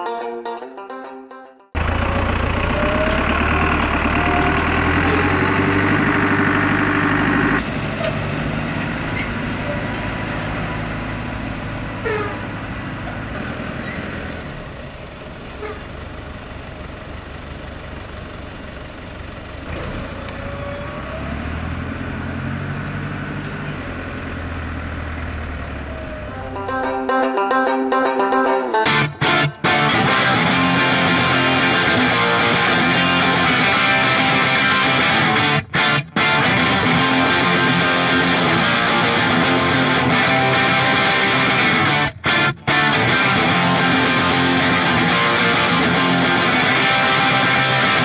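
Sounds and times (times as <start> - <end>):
wood chipper running: 1.8 - 27.0
tractor diesel engine under load: 1.8 - 27.2, 28.9 - 48.0.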